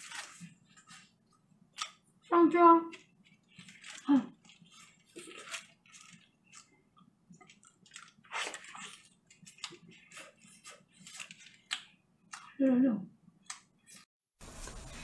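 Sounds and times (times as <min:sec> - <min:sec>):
wet chewing and smacking: 0:00.0 - 0:02.3, 0:03.0 - 0:12.6
meat tearing: 0:03.3 - 0:06.7.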